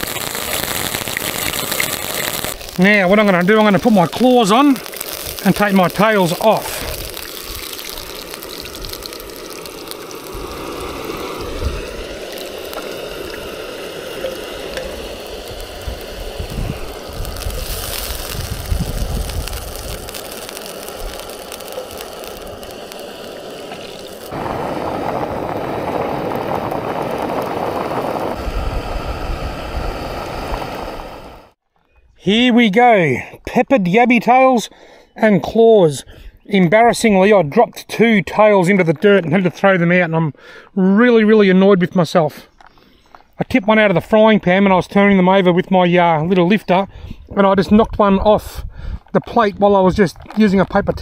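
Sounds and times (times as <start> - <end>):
gas camp stove hissing: 0.0 - 31.6
water boiling hard in pot: 0.0 - 31.6
wind on microphone: 10.2 - 22.7, 24.3 - 31.5, 46.9 - 51.0.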